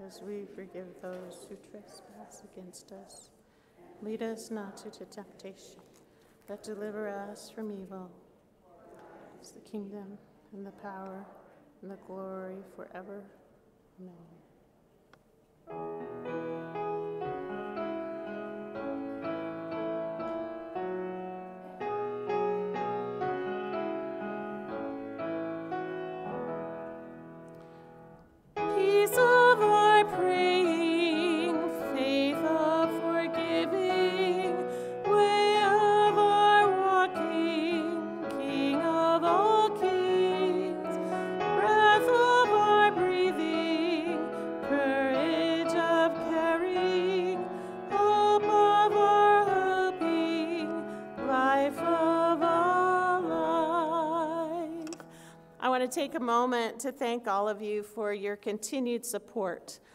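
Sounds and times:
keyboard accompaniment: 0:15.6 - 0:55.6
piano playing quiet hymn: 0:15.6 - 0:55.6
person singing hymn with vibrato: 0:28.6 - 0:54.9.

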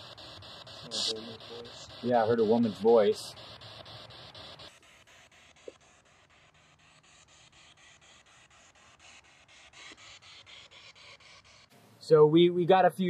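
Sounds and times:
faint hiss: 0:00.0 - 0:04.8.

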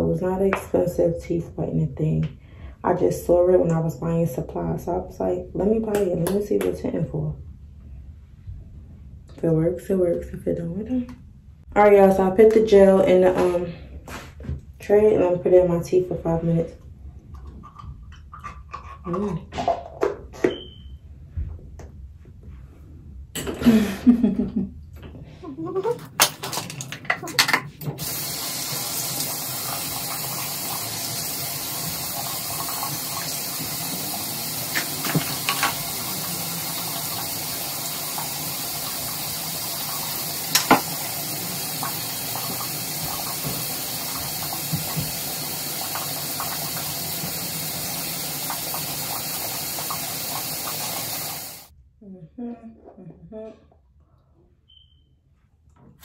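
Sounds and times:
tap running into a sink: 0:26.2 - 0:51.6.

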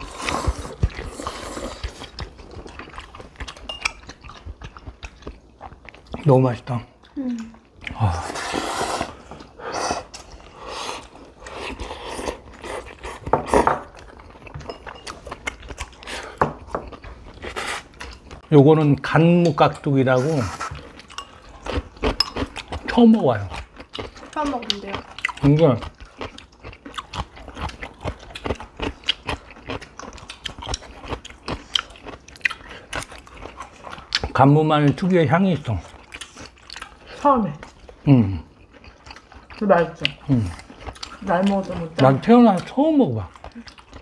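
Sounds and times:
chewing: 0:00.0 - 0:44.0
loud slurp: 0:07.9 - 0:12.9.

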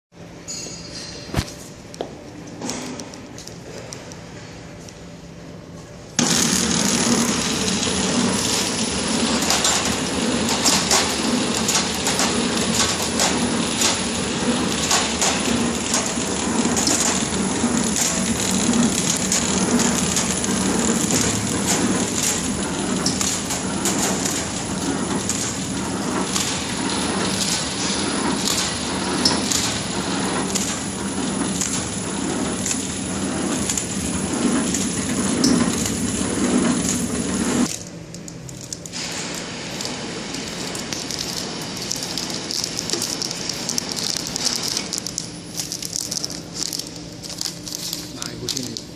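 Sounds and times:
packing machine clattering: 0:06.2 - 0:37.9, 0:38.6 - 0:48.9.

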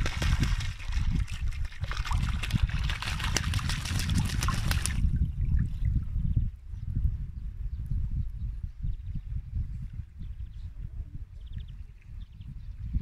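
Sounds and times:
duck splashing in water: 0:00.0 - 0:05.2
wind rumble on microphone: 0:00.0 - 0:13.0.

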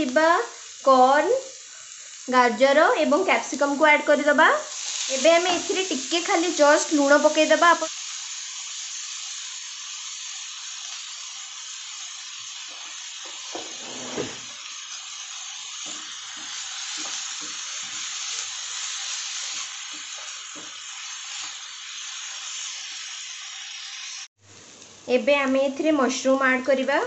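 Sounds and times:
vegetables sizzling in hot oil: 0:00.0 - 0:27.0
wooden spatula scraping and knocking: 0:13.5 - 0:14.5.

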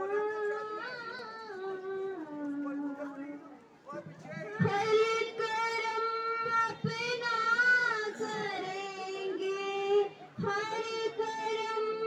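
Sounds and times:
girls singing into microphones: 0:04.4 - 0:12.0.

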